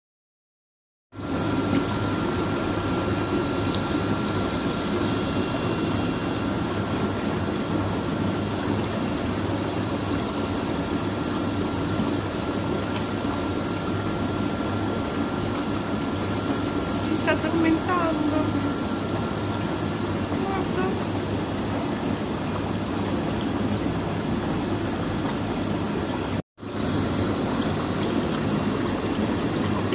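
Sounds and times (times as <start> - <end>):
motor hum with whine: 1.2 - 29.9
water bubbling from jets: 1.2 - 29.9.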